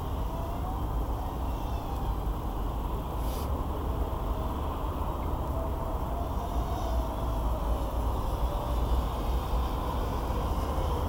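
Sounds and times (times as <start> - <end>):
faint wavering hum: 0.0 - 11.0.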